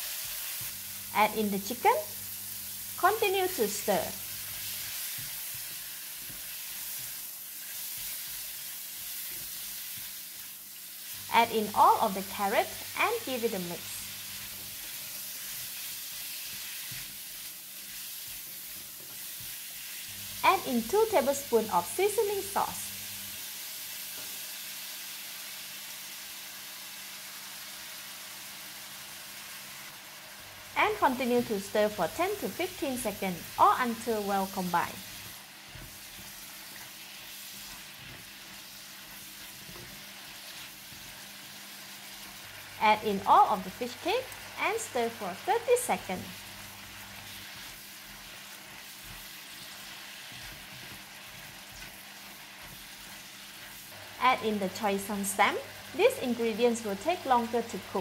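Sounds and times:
spatula stirring food: 0:00.0 - 0:00.9, 0:04.1 - 0:11.2, 0:14.1 - 0:20.5, 0:32.5 - 0:42.8, 0:46.3 - 0:54.2
meat sizzling in wok: 0:00.0 - 0:58.0.

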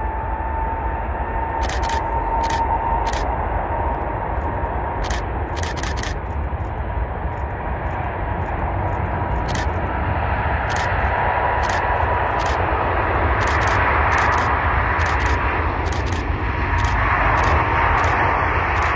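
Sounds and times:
distant jet engines whining: 0:00.0 - 0:18.9
wind rumble on microphone: 0:00.0 - 0:18.9
camera shutter firing: 0:01.6 - 0:03.3, 0:05.0 - 0:06.2, 0:09.5 - 0:09.8, 0:10.7 - 0:10.9, 0:11.6 - 0:12.6, 0:13.4 - 0:16.2, 0:16.8 - 0:18.9.

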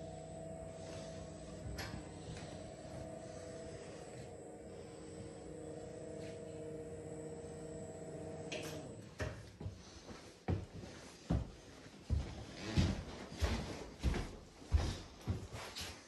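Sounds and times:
home lift drive humming: 0:00.0 - 0:09.9.

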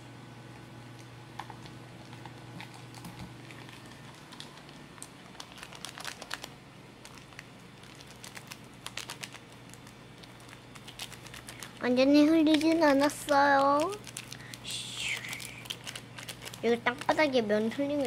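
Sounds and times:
foil lid and packaging crinkling: 0:02.0 - 0:18.0.

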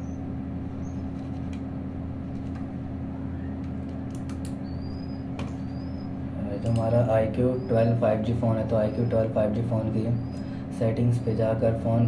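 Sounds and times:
low hum: 0:00.0 - 0:12.0
high rising chirps: 0:04.6 - 0:06.2.

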